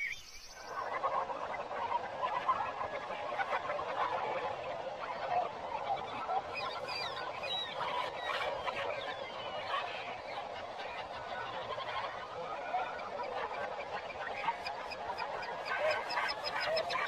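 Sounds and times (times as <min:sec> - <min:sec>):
birds calling and chattering: 0:06.0 - 0:17.0.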